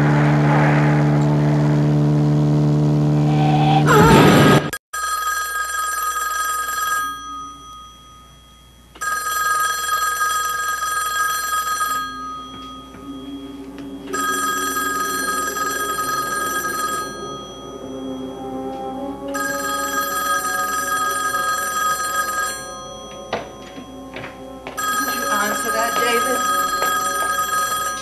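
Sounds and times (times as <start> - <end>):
loud sound cut off: 0.0 - 4.8, 12.3 - 25.0
telephone bell ringing: 5.0 - 18.7, 19.3 - 28.0.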